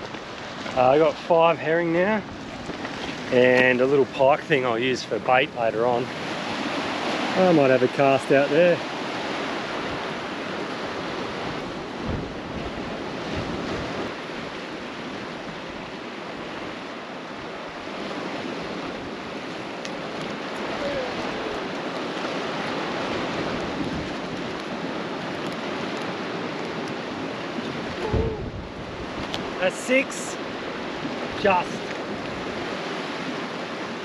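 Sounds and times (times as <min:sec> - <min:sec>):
surf washing over rocks: 0:00.0 - 0:34.0
wind on the microphone: 0:09.2 - 0:29.7.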